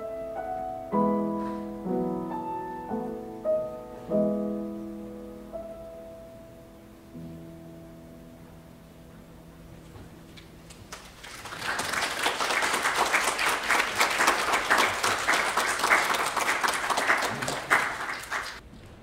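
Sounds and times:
piano notes: 0.0 - 11.1
audience applauding: 10.7 - 18.6.

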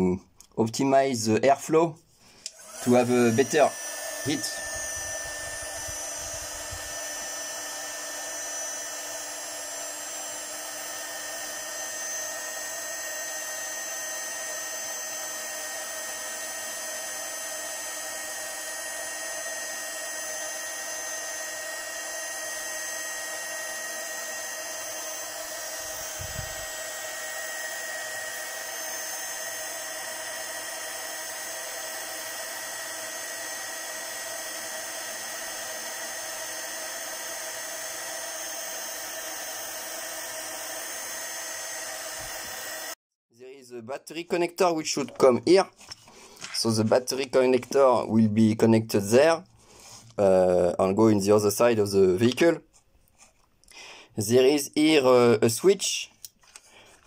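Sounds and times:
heat gun fan whining: 2.3 - 43.0.

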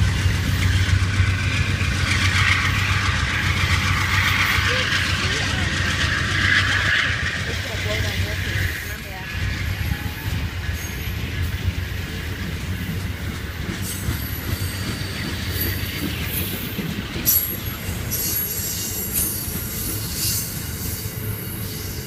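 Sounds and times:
train wheels rumbling on rail: 0.0 - 22.0
wheel squeals: 12.8 - 22.0.

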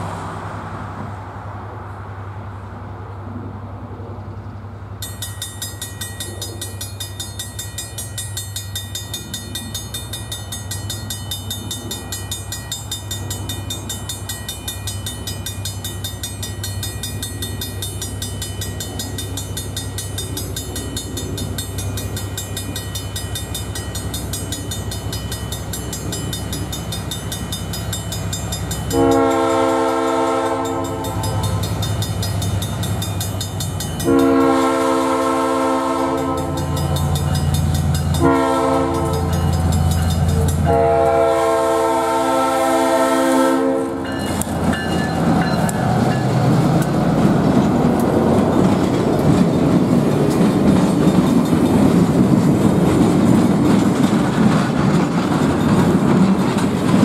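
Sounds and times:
diesel train hum: 0.0 - 57.0
crossing bell ringing: 5.0 - 52.6, 55.3 - 57.0
train horn: 28.9 - 31.6, 34.0 - 36.8, 38.1 - 39.6, 40.4 - 44.1.

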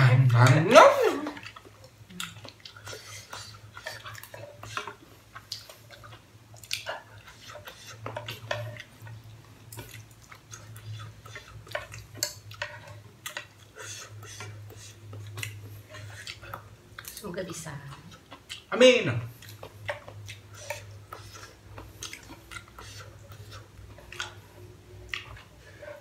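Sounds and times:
chopsticks and spoon scraping saucepan: 7.2 - 8.8, 19.6 - 24.5.

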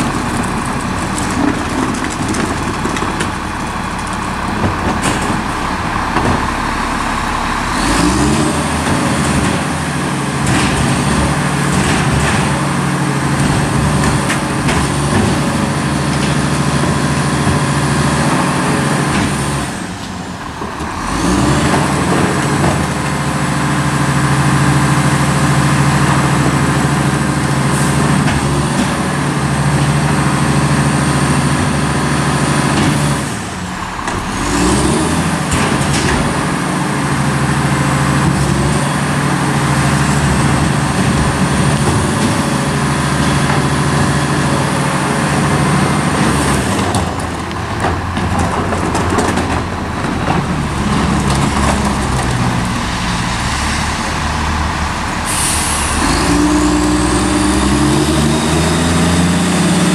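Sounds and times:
diesel truck engine idling: 0.0 - 59.9
truck engine revving: 0.0 - 59.9
air brakes hissing: 53.0 - 56.8.

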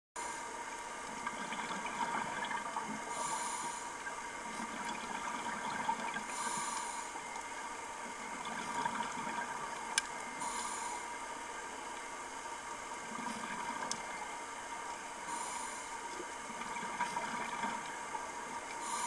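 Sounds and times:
underwater hiss with crackling: 0.2 - 19.0
diver breathing through regulator: 3.1 - 4.0, 6.3 - 7.2, 10.4 - 11.1, 15.3 - 16.0, 18.8 - 19.0.

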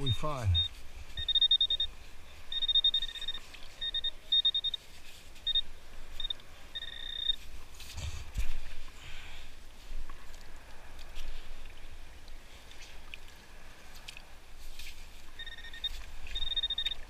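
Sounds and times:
metal detector beeps: 0.0 - 1.9, 2.5 - 4.8, 5.4 - 7.4, 15.4 - 17.0.

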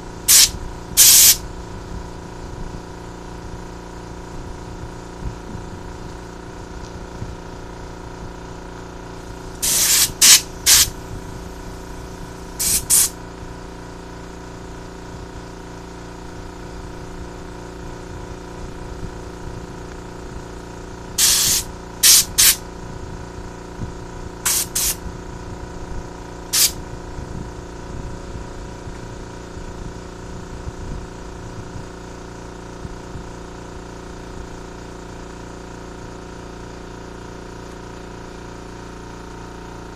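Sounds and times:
air compressor humming: 0.0 - 32.6
air blow gun bursts: 0.3 - 1.4, 9.5 - 11.5, 12.5 - 13.2, 21.2 - 22.6, 24.4 - 25.0, 26.5 - 26.8.

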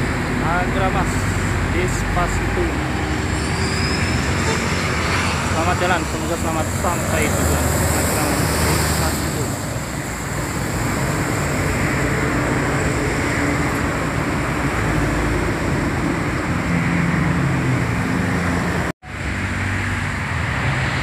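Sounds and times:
tyres hissing on wet road: 0.0 - 16.7
engines running: 0.0 - 20.9
bus pulling away: 0.0 - 21.0.

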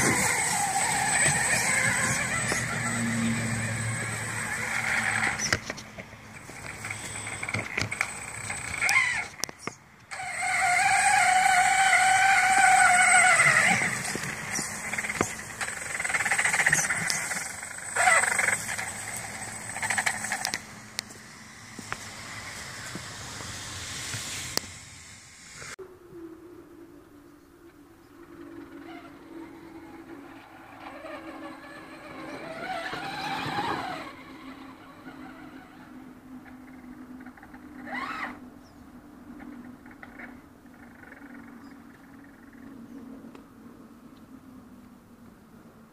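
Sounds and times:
rc truck motor whining: 0.0 - 25.8, 28.6 - 38.4.

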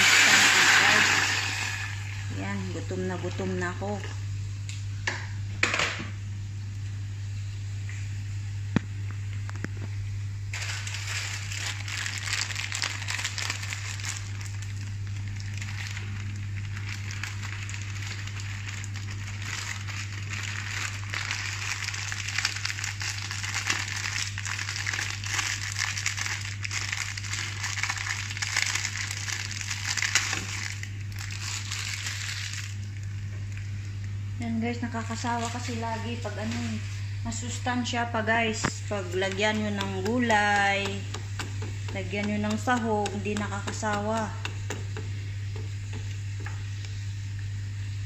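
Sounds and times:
meat sizzling in a frying pan: 0.0 - 2.1, 10.6 - 32.8
steady low hum: 0.0 - 48.0
plastic packet crinkling: 10.5 - 33.1, 38.6 - 46.0.

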